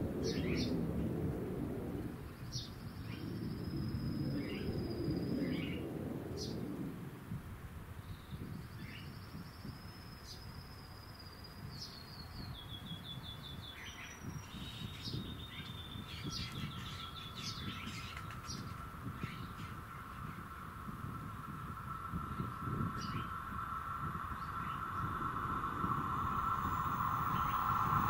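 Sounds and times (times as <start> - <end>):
small birds trilling: 11.2 - 28.0
low uneven rumble: 15.2 - 28.0
steady high tone: 19.7 - 28.0.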